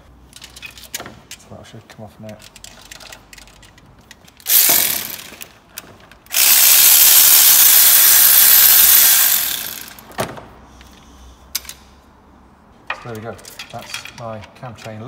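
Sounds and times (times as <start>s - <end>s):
cordless power driver running: 4.5s - 5.4s, 6.3s - 10.0s.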